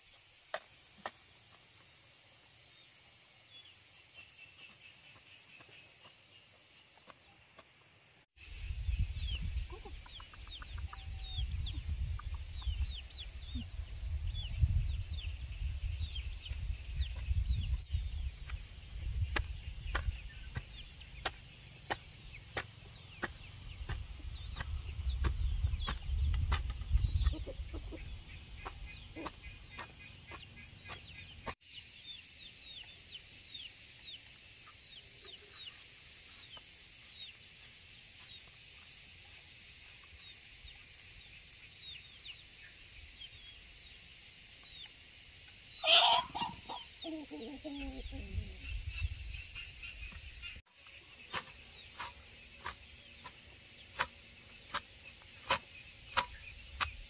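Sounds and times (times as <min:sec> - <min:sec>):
chicks chirping: 0:08.5 - 0:38.9
chicken clucking: 0:09.6 - 0:13.7, 0:26.9 - 0:31.6, 0:45.8 - 0:49.6
chicken squawk: 0:45.8 - 0:48.4.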